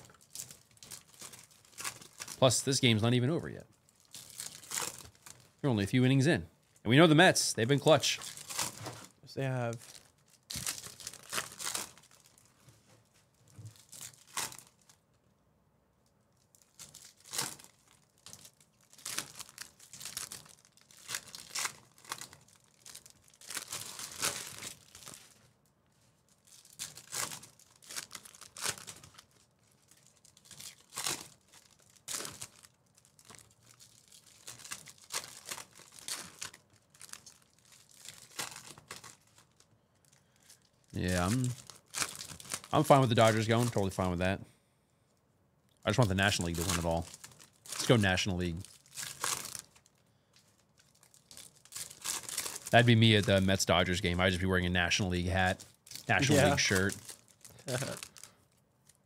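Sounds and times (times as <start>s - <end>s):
wrappers tearing and crinkling: 0.0s - 5.6s, 7.9s - 12.6s, 13.2s - 15.0s, 16.3s - 44.1s, 45.8s - 59.0s.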